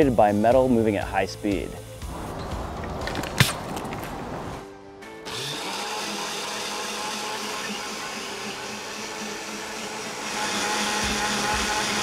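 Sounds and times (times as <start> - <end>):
blender motor running: 5.2 - 12.0.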